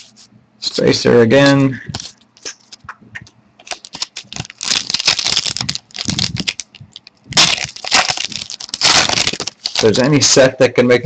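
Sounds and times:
plastic crinkling: 0:03.6 - 0:10.1.

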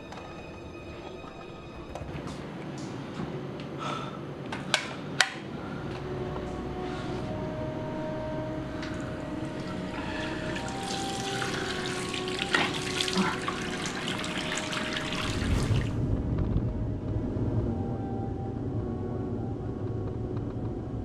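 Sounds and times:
running water splashing: 0:10.2 - 0:15.9
low rumble: 0:15.2 - 0:21.0.

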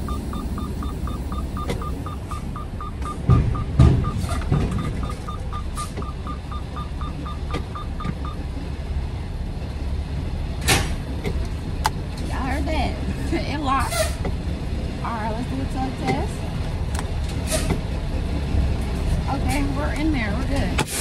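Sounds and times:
rapid high reversing beeps: 0:00.0 - 0:08.4
truck diesel engine running: 0:00.0 - 0:21.0
heavy thumps: 0:00.8 - 0:05.4.

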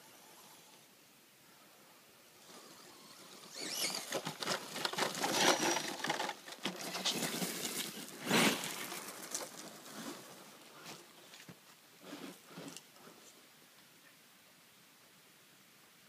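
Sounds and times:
tyres crackling on gravel: 0:02.4 - 0:12.8.

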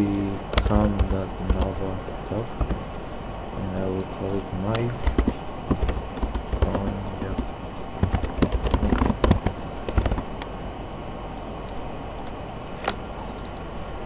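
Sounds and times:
keyboard typing: 0:00.4 - 0:03.0, 0:04.7 - 0:10.4.

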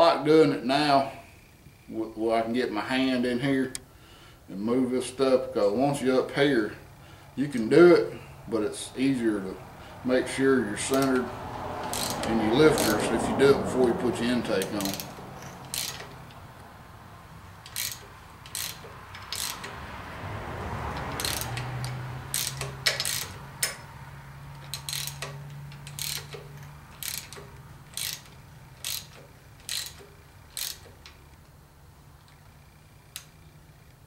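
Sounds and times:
ratchet wrench clicking: 0:10.8 - 0:13.9, 0:14.5 - 0:16.4, 0:17.6 - 0:19.8, 0:20.9 - 0:23.9, 0:24.5 - 0:31.5, 0:32.3 - 0:33.4.

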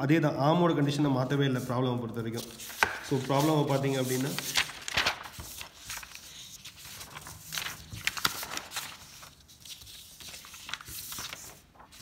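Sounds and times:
paper rustling: 0:01.5 - 0:12.0.

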